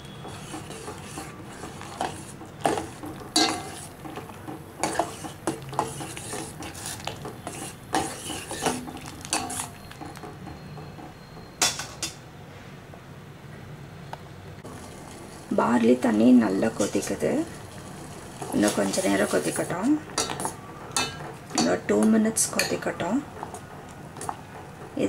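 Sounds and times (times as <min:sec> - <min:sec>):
spoon stirring in metal pot: 0:00.0 - 0:11.1, 0:16.6 - 0:23.6
spoon clinking on pot: 0:02.1 - 0:06.7, 0:20.2 - 0:21.8.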